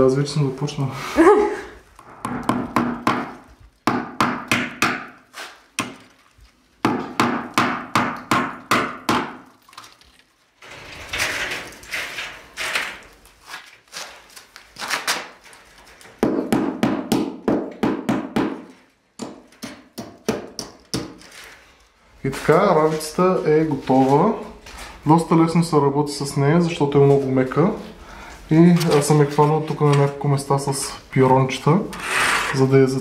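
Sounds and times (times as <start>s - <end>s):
hammer tapping nails: 2.2s - 5.2s, 6.8s - 9.4s, 16.2s - 21.2s.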